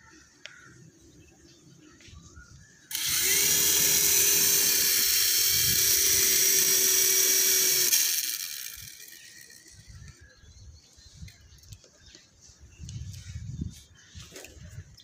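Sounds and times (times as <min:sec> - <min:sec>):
toy helicopter motor whine: 0:02.9 - 0:10.2.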